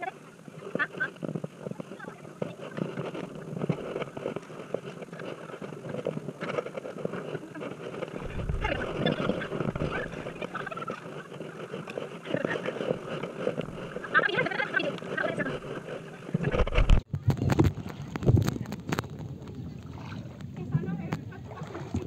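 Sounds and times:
paddle strokes splashing: 0.0s - 22.0s
low buffeting rumble: 7.4s - 22.0s.

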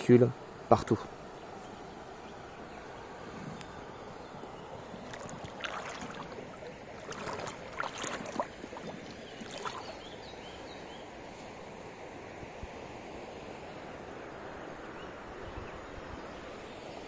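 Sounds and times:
river water running over pebbles: 2.0s - 10.7s
water splashing and trickling: 3.7s - 10.7s.

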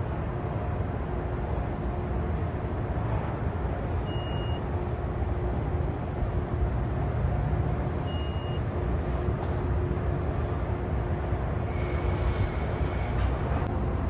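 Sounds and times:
steady hum: 0.0s - 14.0s
traffic engines rumbling: 0.0s - 14.0s
short high-pitched beeps: 4.0s - 4.6s, 8.0s - 8.6s.

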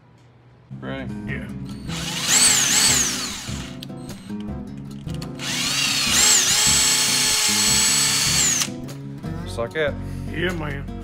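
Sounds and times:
cordless drill whining: 1.9s - 4.4s, 5.4s - 8.8s.

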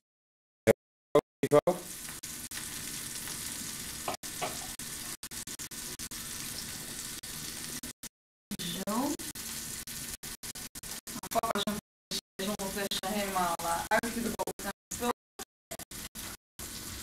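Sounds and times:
food sizzling in pans: 1.8s - 8.0s, 8.6s - 11.6s, 12.4s - 14.6s, 15.9s - 17.0s.

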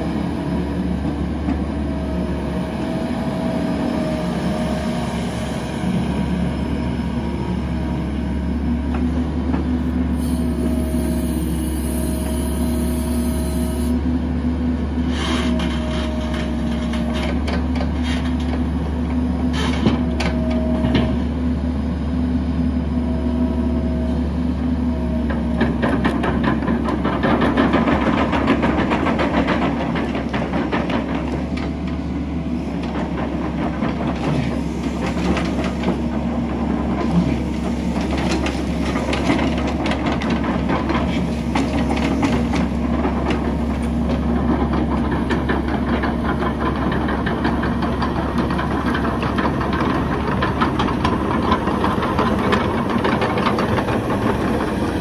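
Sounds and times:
diesel engine running: 0.0s - 55.0s
excavator tracks clattering: 15.0s - 21.3s, 25.1s - 55.0s.

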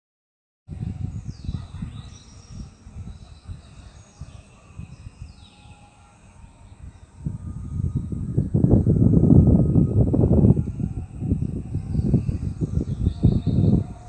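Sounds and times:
wind rumbling on microphone: 0.7s - 14.0s
birds calling: 1.2s - 5.9s.

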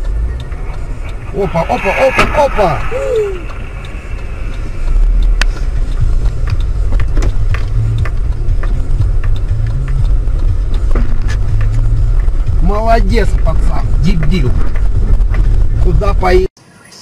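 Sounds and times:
car cabin rumble: 0.0s - 16.5s.

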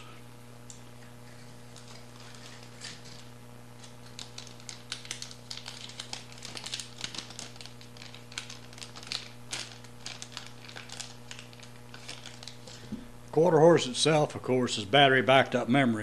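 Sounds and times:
electrical hum: 0.0s - 16.0s
plastic bags crackling: 1.2s - 13.2s.

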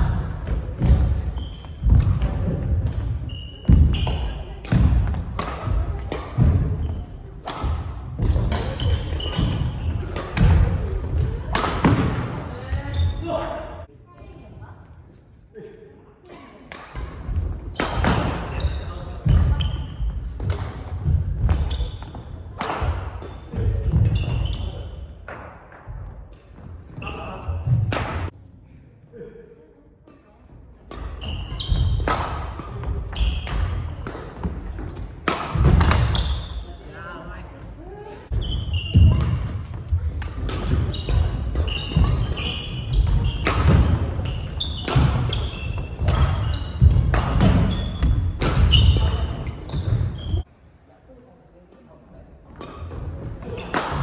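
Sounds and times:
shoes squeaking on court: 1.2s - 2.0s, 2.8s - 4.6s, 21.5s - 22.4s, 31.1s - 36.9s, 38.3s - 50.4s
racket hitting shuttlecock: 1.8s - 12.3s, 20.3s - 21.8s, 22.6s - 24.4s, 30.9s - 36.5s, 38.4s - 50.0s, 52.6s - 54.0s
racket striking shuttlecock: 38.9s - 49.1s.

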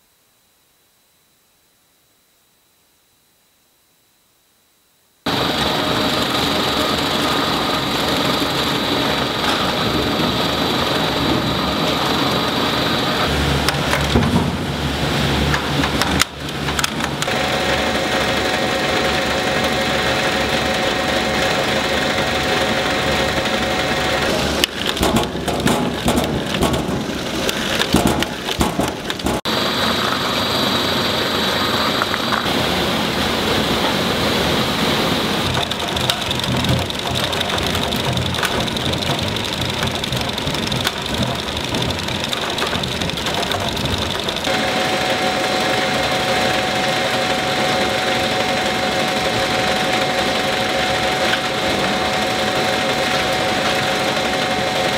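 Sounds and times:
motor whine: 5.3s - 25.4s, 29.5s - 54.9s
conveyor machinery running: 5.3s - 54.9s
irregular knocking and rattling: 22.7s - 29.5s, 35.4s - 44.5s.

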